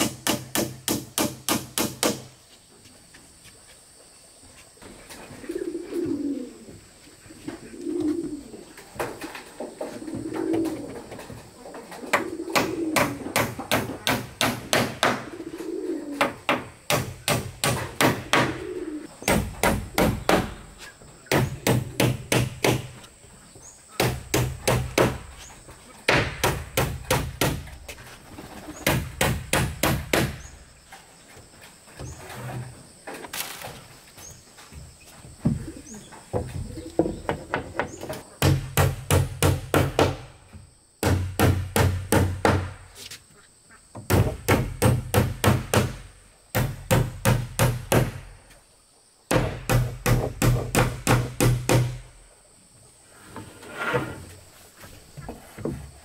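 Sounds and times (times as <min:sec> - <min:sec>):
hammer striking wood: 0:00.0 - 0:02.3, 0:12.6 - 0:15.2, 0:16.2 - 0:18.6, 0:19.3 - 0:20.6, 0:21.3 - 0:23.0, 0:24.0 - 0:25.2, 0:26.1 - 0:27.7, 0:28.9 - 0:30.4, 0:38.4 - 0:40.3, 0:41.0 - 0:42.8, 0:44.0 - 0:48.2, 0:49.3 - 0:52.0
dove cooing: 0:05.1 - 0:13.4, 0:15.2 - 0:16.4, 0:18.3 - 0:19.1, 0:35.5 - 0:38.1.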